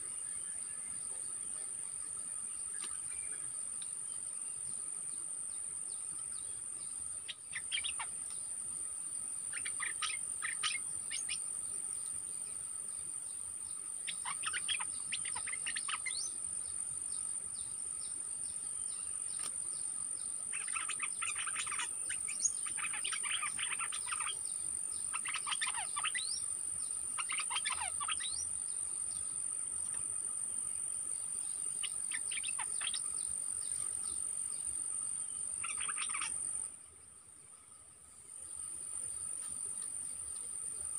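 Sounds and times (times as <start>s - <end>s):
songbird chattering calls: 7.3s - 8.2s, 9.5s - 11.4s, 14.0s - 16.4s, 20.5s - 28.5s, 31.5s - 34.0s, 35.4s - 36.6s.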